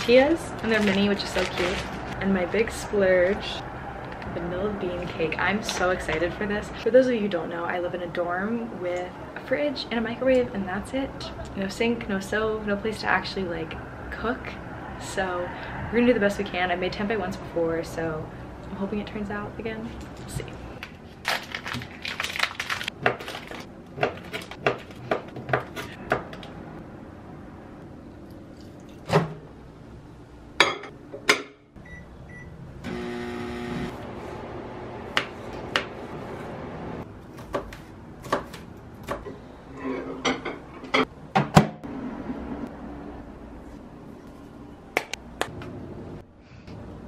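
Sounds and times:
plastic packaging crinkling: 0.0 - 2.2, 20.8 - 24.6
microwave oven humming: 31.8 - 35.1.

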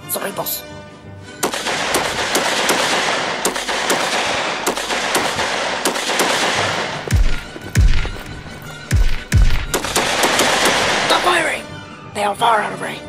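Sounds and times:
rifle fire volley: 1.4 - 11.4.

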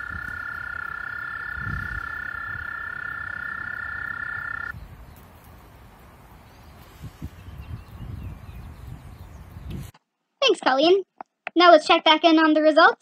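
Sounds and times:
toads trilling: 0.0 - 4.8.

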